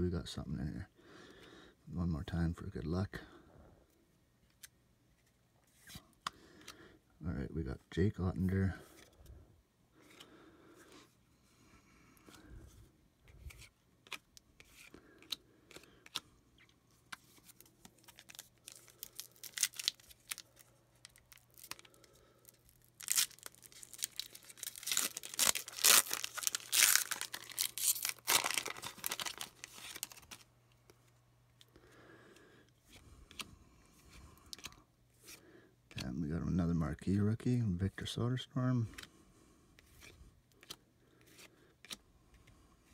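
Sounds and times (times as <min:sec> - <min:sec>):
foil wrapper tearing and crinkling: 0:17.9 - 0:30.5.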